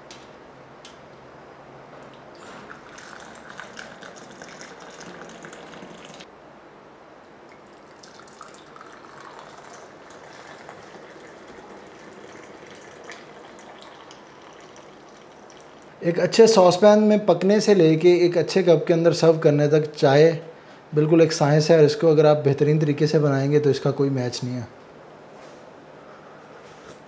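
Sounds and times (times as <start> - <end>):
tea pouring into glass cup: 2.3 - 6.3, 7.5 - 16.0.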